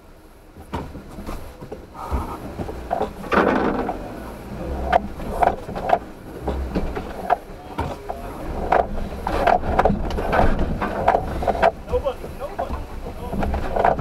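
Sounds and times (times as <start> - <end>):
low engine rumble: 0.0 - 14.0
vehicle body knocks and creaks: 0.5 - 14.0.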